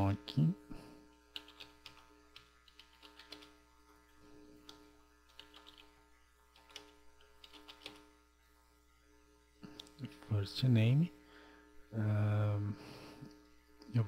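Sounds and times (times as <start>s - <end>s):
low electrical hum: 0.0s - 14.0s
keyboard typing: 1.3s - 3.6s, 4.6s - 8.1s.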